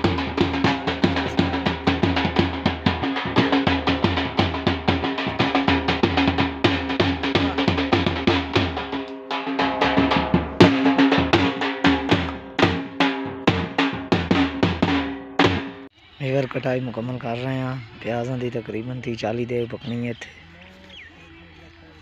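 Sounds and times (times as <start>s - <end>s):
drum beaten with sticks: 0.0s - 15.9s.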